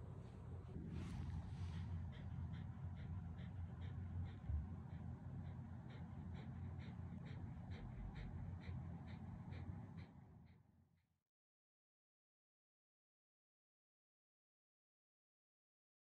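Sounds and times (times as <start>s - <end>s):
dog panting: 0.0s - 11.1s.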